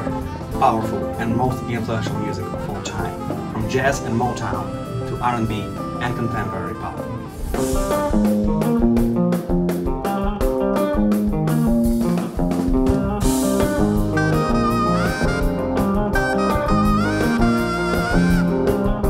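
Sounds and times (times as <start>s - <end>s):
saxophone melody: 0.0s - 8.0s, 13.8s - 19.0s
live pop-rock band playing: 0.0s - 19.0s.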